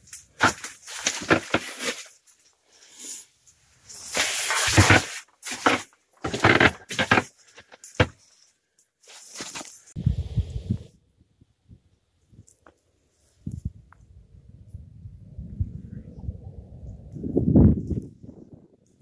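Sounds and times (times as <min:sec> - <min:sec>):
tent fabric rustling: 0:03.8 - 0:08.4, 0:09.0 - 0:10.0.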